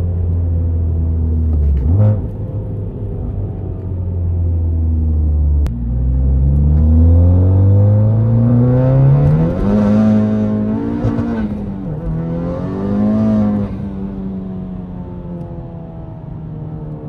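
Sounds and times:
car engine accelerating hard: 5.0 - 15.0.

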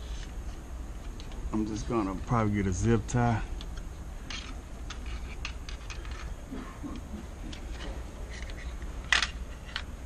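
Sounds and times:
low steady hum: 0.0 - 10.0
plastic clicks and rustles: 3.6 - 9.9.

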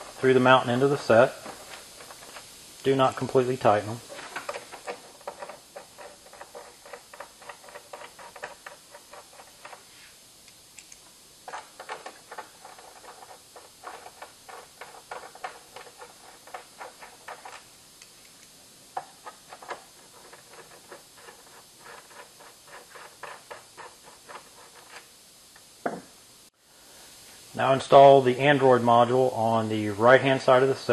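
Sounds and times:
screwdriver clicking and scraping: 4.0 - 9.8, 10.8 - 25.1.

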